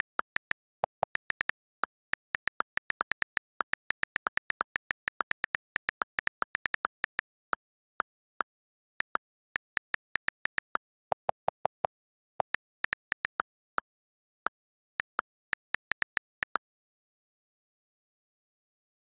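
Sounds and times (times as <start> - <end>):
phone keyboard key clicks: 0.0 - 7.5.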